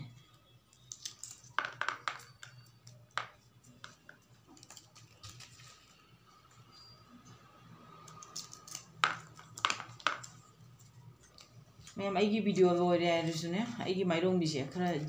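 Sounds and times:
peas dropping onto plastic plate: 1.2 - 4.1, 9.0 - 10.4.

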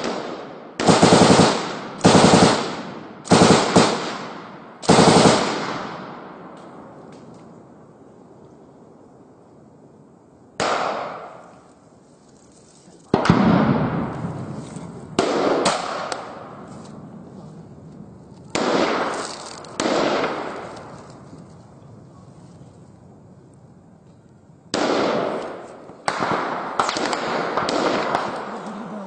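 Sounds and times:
gunshots with long echo: 0.0 - 7.1, 10.6 - 11.6, 13.1 - 17.3, 18.4 - 21.2, 24.7 - 29.0.

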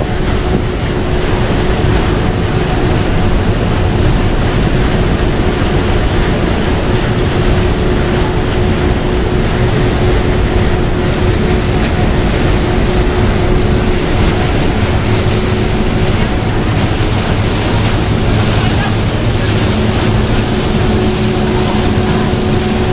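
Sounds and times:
rush of churning wake: 0.0 - 22.9
steady engine hum: 0.0 - 22.9
wind buffeting microphone: 0.0 - 22.9.

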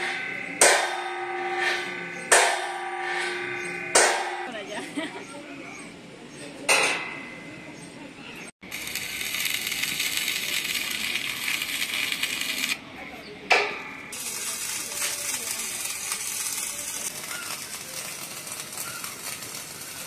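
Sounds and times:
welding arc crackling: 8.6 - 12.8, 14.1 - 20.0.

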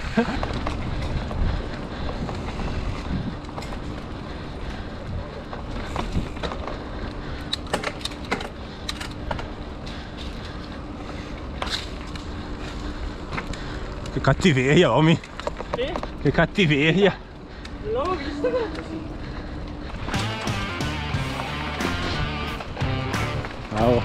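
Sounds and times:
tyre and wind noise: 0.0 - 17.1
bike clicks and rattles: 0.0 - 24.0.

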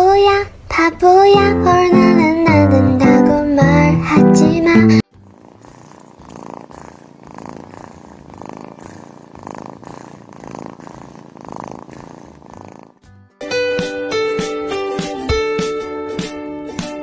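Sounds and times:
kitten purring: 0.0 - 13.1.

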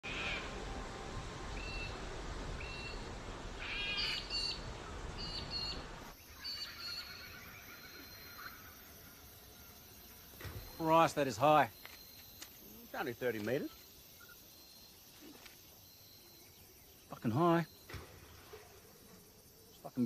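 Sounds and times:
birds calling in high notes: 3.6 - 18.7.

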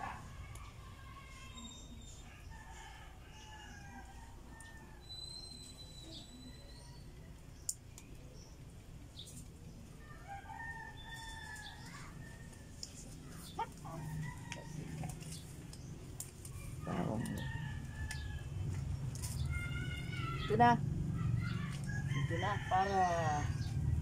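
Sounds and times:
roosters crowing: 0.0 - 5.6, 10.0 - 12.9, 13.5 - 15.5, 16.6 - 24.0.

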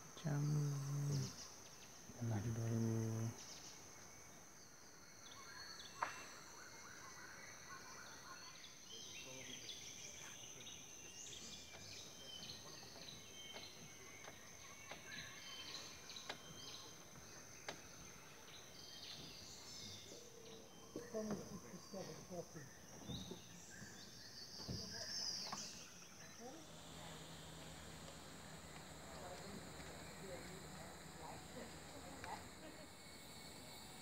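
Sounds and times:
high-pitched insect drone: 0.0 - 3.8, 26.4 - 34.0.

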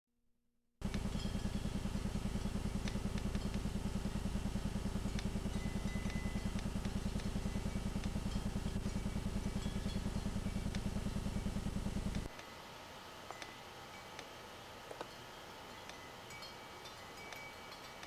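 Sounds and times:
low pulsing mechanical drone: 0.8 - 14.0.

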